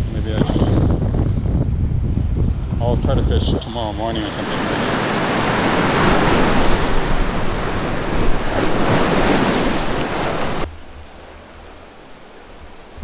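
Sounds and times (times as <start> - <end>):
wind buffeting microphone: 0.0 - 13.0
surf breaking on rocky shore: 4.1 - 13.0.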